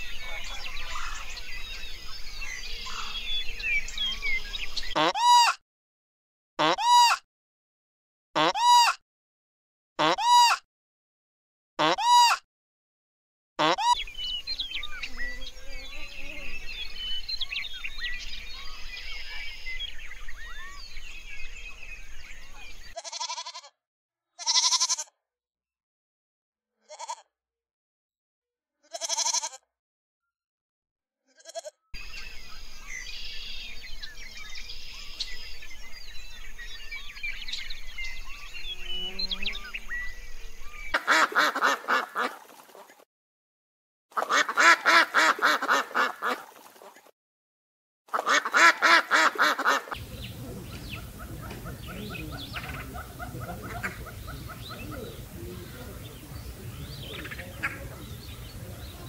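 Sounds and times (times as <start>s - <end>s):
goats bleating: 24.4s - 25.0s, 28.9s - 29.6s.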